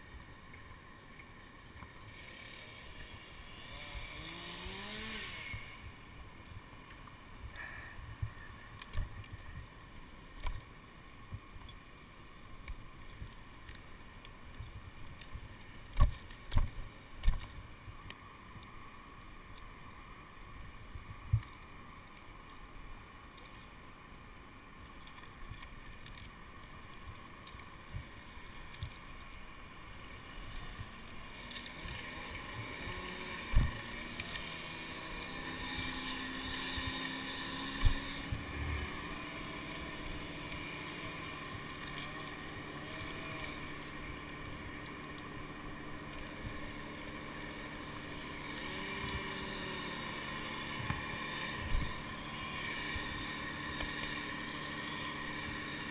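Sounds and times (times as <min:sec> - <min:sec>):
gear knocking against tree trunk: 0:14.5 - 0:17.6, 0:30.6 - 0:55.9
steady drone: 0:30.3 - 0:55.9.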